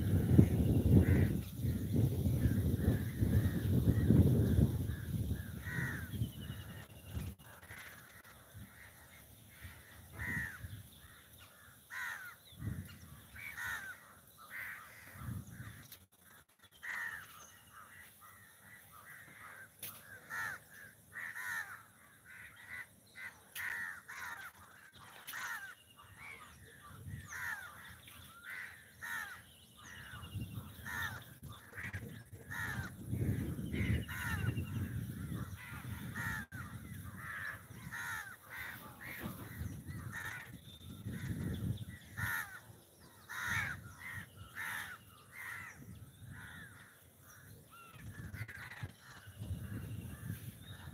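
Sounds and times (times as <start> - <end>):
crows cawing: 0.0 - 6.8, 7.4 - 50.9.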